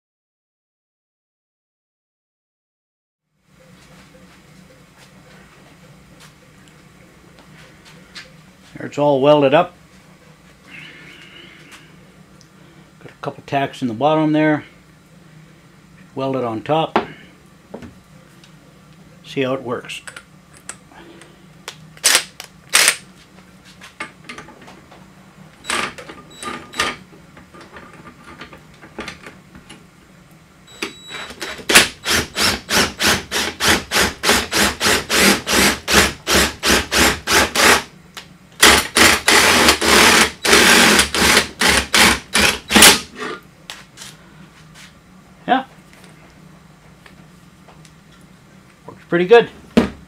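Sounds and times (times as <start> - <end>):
impact driver hammering: 31.6 - 37.9, 38.6 - 43.1.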